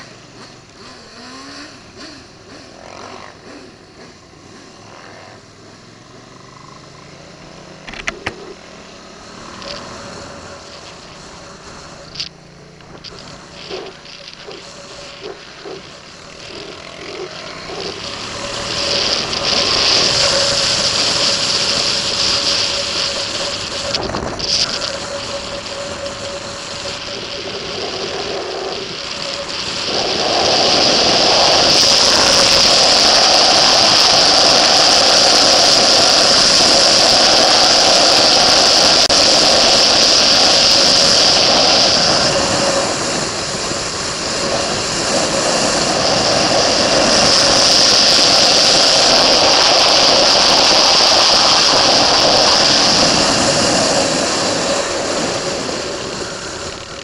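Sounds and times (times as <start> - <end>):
motorcycle engine at speed: 0.0 - 57.0
wind rush on microphone: 12.8 - 57.0.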